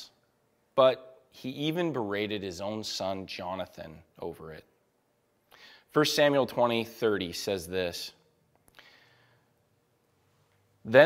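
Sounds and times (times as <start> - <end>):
soft intake of breath: 5.5 - 5.9, 8.7 - 9.7.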